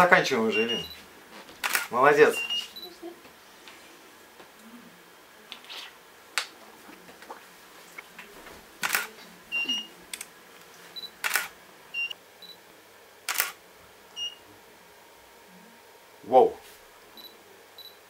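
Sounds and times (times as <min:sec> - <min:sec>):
short high electronic beeps: 0:00.5 - 0:01.0
camera shutter clicking: 0:01.6 - 0:01.9, 0:08.8 - 0:09.1, 0:11.2 - 0:11.5, 0:13.3 - 0:13.6.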